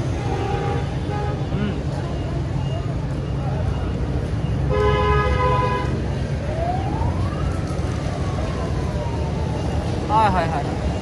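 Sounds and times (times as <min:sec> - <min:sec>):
street traffic rumbling: 0:00.0 - 0:11.0
vehicle horn: 0:04.7 - 0:06.0
siren: 0:05.8 - 0:11.0.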